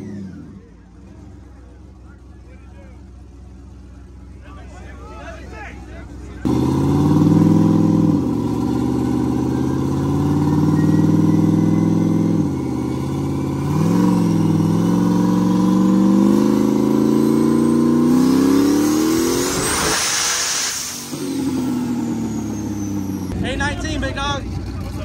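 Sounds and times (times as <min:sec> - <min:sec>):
turbocharged engine revving: 0:00.0 - 0:01.8, 0:05.6 - 0:25.0
loud burst of hiss: 0:19.8 - 0:21.2.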